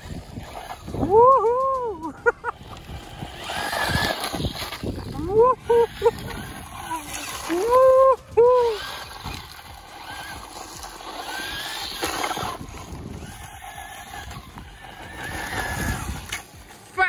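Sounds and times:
toy truck electric motor whining: 0.0 - 16.9
tyres crunching over gravel: 8.8 - 17.0.

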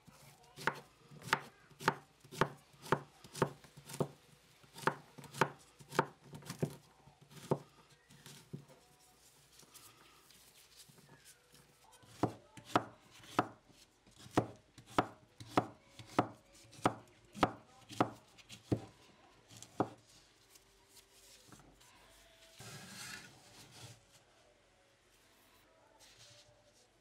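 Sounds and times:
knife chopping on wooden board: 14.2 - 18.9
knife blade scraping board: 22.6 - 23.9.

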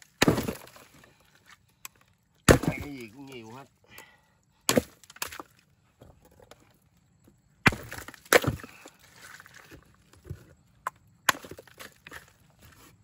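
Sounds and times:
ice chunks knocking: 0.0 - 0.9, 7.6 - 9.6.

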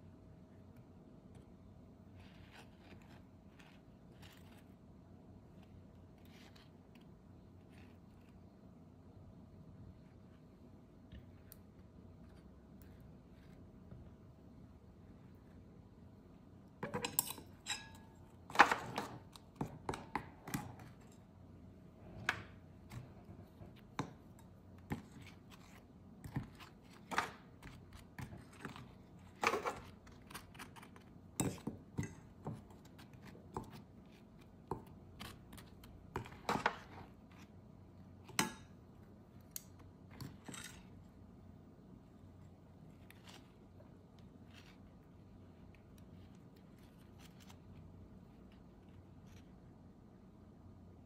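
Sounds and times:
faint steady hum: 0.0 - 51.0
utensils and dishes clinking: 16.8 - 19.2.

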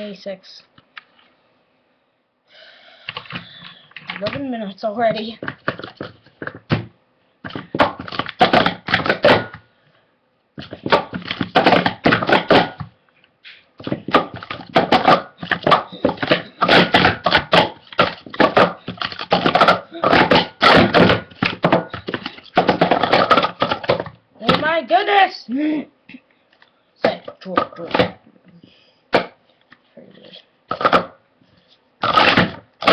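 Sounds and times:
plastic cups clattering: 3.1 - 4.5, 5.2 - 6.8, 7.4 - 9.6, 10.6 - 12.9, 13.8 - 24.7, 30.7 - 31.2, 32.0 - 32.9.

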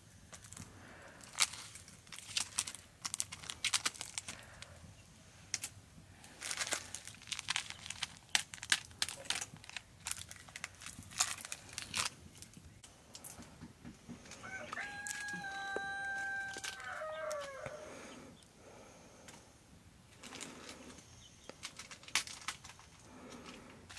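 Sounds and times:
crackling and snapping: 0.0 - 18.5, 20.1 - 23.9
rooster crowing: 14.2 - 18.3.

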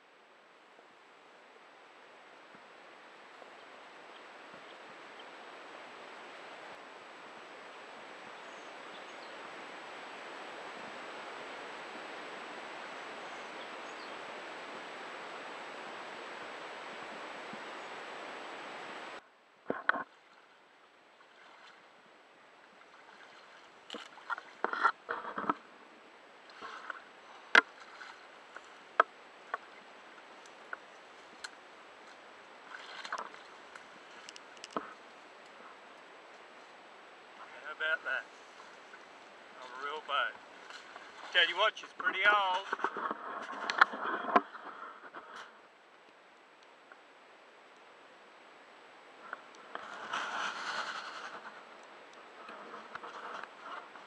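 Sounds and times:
rushing water and wind: 0.0 - 54.0
paddle knocking kayak: 38.3 - 45.3.

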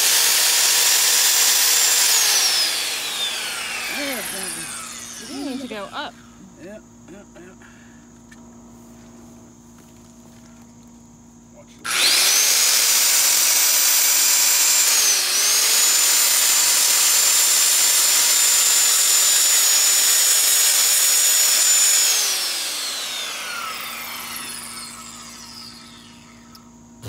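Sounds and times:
circular saw cutting wood: 0.0 - 6.1, 11.9 - 26.6
saw blade winding down: 0.0 - 6.1, 11.9 - 26.7.

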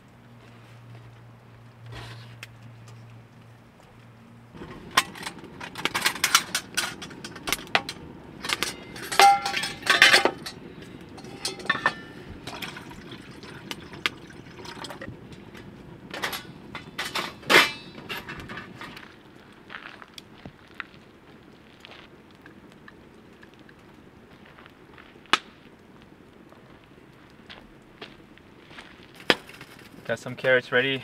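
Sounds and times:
metal pots clinking: 4.6 - 19.0.

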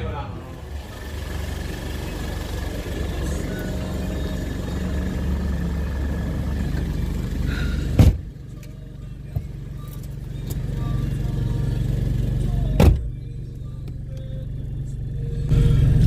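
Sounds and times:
muffled car engine idling: 0.0 - 16.0
car door slamming: 7.8 - 8.3, 12.8 - 13.1.

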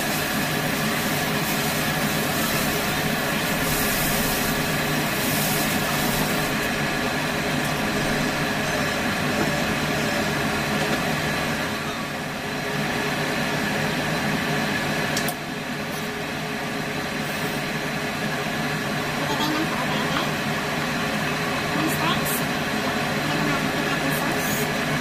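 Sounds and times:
ventilation fan humming: 0.0 - 25.0.

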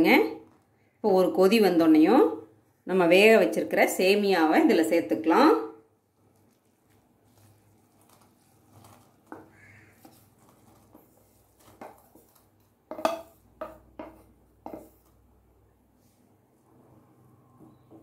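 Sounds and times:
metal bowl and spoon clinking: 12.9 - 15.0.

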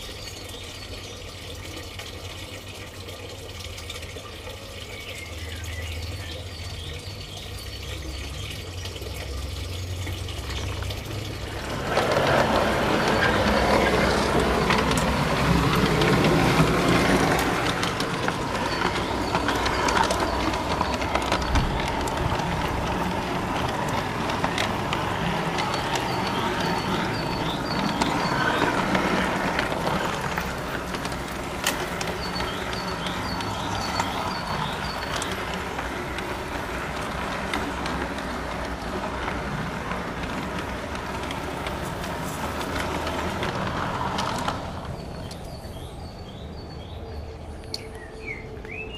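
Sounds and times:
wheels rattling on track: 0.0 - 48.9
model train motor whining: 9.3 - 46.2.

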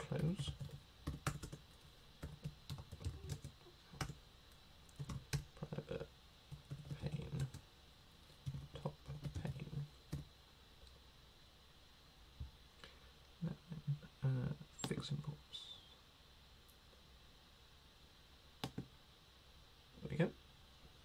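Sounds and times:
typing on computer keyboard: 0.2 - 1.6, 2.2 - 4.2, 4.9 - 5.5, 6.5 - 7.6, 8.5 - 10.2.

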